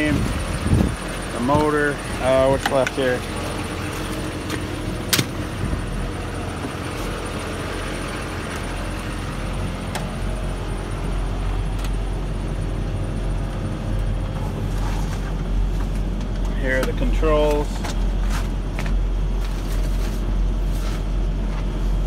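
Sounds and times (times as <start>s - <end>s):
truck engine idling: 0.0s - 22.0s.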